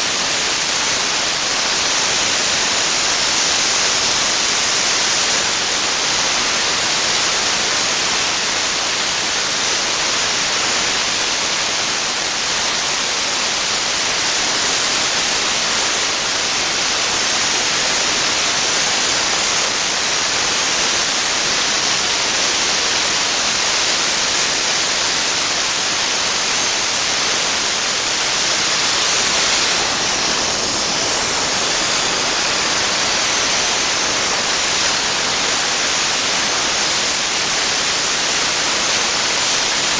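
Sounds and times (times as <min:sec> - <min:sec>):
dry ice blaster hissing: 0:00.0 - 0:39.9.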